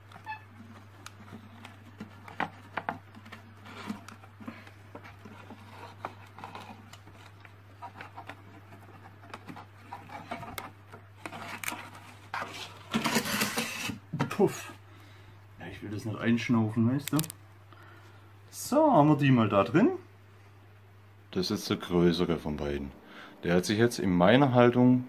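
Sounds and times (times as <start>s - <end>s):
steady low hum: 13.9s - 25.0s.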